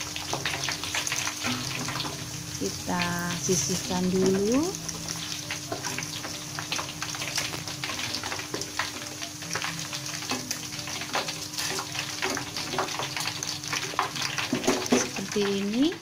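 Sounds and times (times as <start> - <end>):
oil sizzling and popping: 0.0 - 16.0
metal ladle stirring oil: 3.5 - 15.4.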